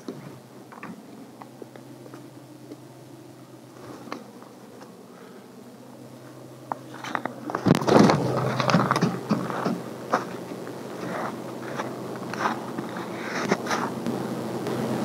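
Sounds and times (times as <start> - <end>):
bird flapping its wings: 7.5 - 9.8
footsteps in snow: 8.2 - 14.1.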